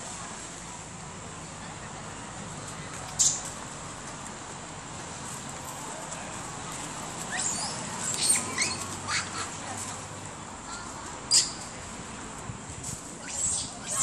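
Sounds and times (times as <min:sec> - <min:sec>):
high-pitched squeaky calls: 0:03.1 - 0:03.5, 0:07.2 - 0:09.6, 0:11.3 - 0:11.7, 0:13.2 - 0:14.0.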